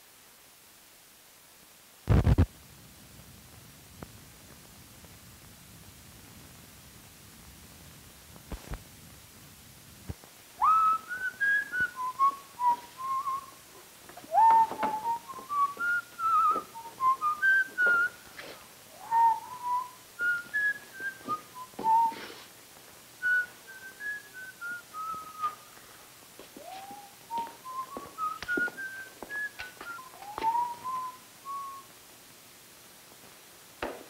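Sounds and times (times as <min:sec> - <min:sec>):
man whistling a tune: 0:10.6 - 0:13.6, 0:14.3 - 0:18.2, 0:19.0 - 0:22.4, 0:23.2 - 0:25.7, 0:26.6 - 0:31.9.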